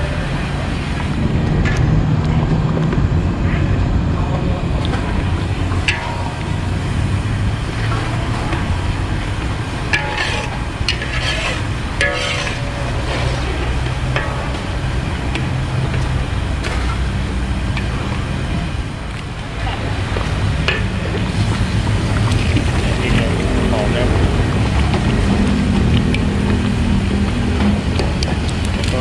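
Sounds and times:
steady low rumble: 0:00.0 - 0:29.0
spatula scraping a wok: 0:09.9 - 0:15.1.

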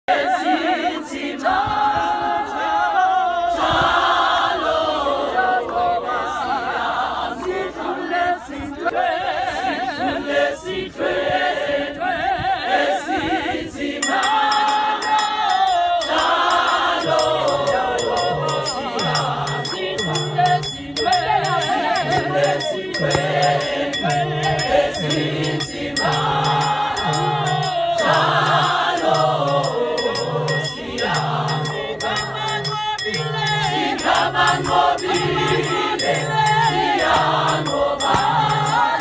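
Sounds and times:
women singing a church song: 0:00.1 - 0:39.0
hand claps: 0:14.1 - 0:30.3, 0:31.0 - 0:39.0.

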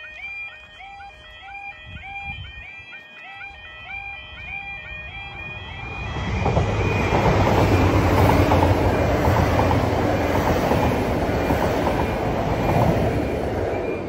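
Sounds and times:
train rumbling: 0:04.3 - 0:14.0.

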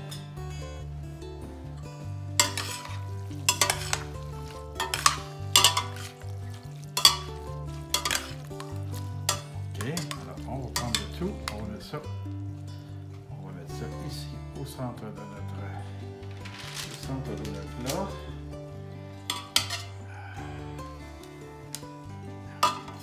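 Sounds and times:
wet stirring of pasta: 0:02.3 - 0:13.3, 0:16.2 - 0:20.1, 0:22.6 - 0:23.0
utensils scraping metal pot: 0:02.4 - 0:12.0, 0:19.2 - 0:20.0, 0:22.6 - 0:23.0.

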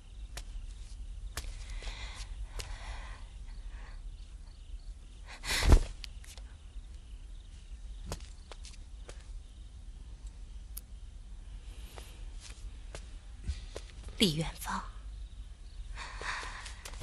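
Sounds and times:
soft footsteps: 0:00.2 - 0:02.8, 0:07.4 - 0:09.4, 0:11.8 - 0:14.2.

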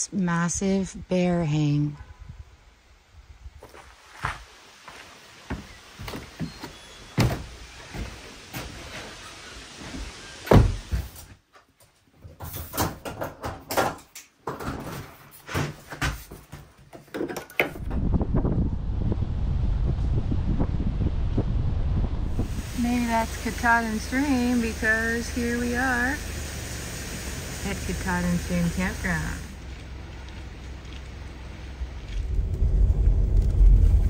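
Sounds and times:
steady low rumble: 0:17.8 - 0:26.8, 0:27.5 - 0:34.0.

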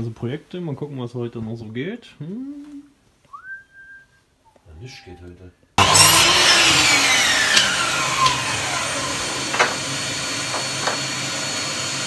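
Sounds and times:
electric motor whine slowing: 0:05.8 - 0:12.0.

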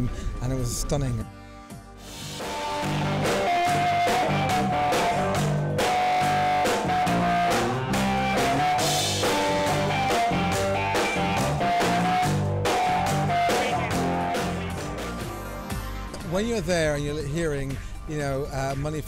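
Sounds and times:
electric guitar riff: 0:02.0 - 0:16.2
drum kit beat: 0:02.0 - 0:19.0
bass line: 0:02.1 - 0:17.8.

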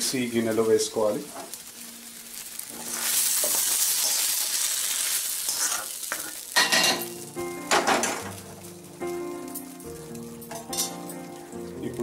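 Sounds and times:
tomatoes sizzling in pan: 0:00.0 - 0:12.0
spoon scraping pan: 0:05.4 - 0:06.4.

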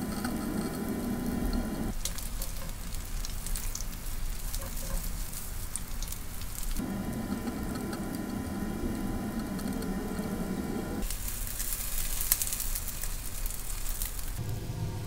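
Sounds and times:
food sizzling: 0:00.0 - 0:15.0
steady low cooking noise: 0:00.0 - 0:15.0.

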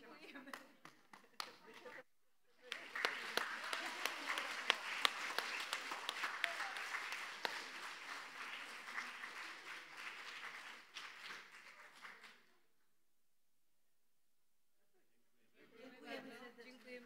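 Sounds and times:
audience applause: 0:02.6 - 0:12.5.

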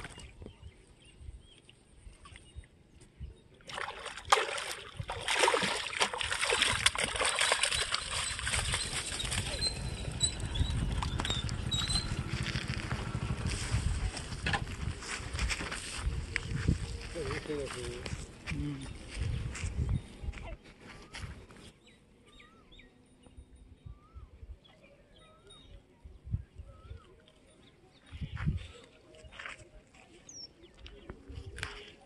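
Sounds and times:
water splashing and sloshing: 0:03.6 - 0:13.3
fish thrashing at surface: 0:03.7 - 0:10.0.

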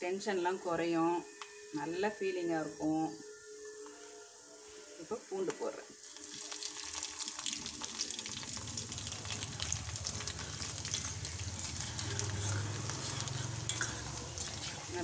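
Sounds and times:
garlic and rice sizzling in oil: 0:00.1 - 0:15.0
metal spoon stirring: 0:10.0 - 0:15.0.

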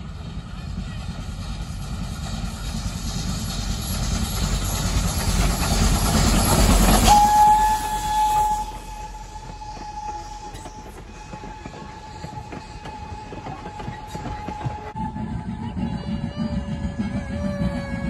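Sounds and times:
coaches clickety-clack on rails: 0:00.0 - 0:18.0
steam locomotive rumble: 0:00.0 - 0:18.0
steam whistle: 0:06.7 - 0:15.6.

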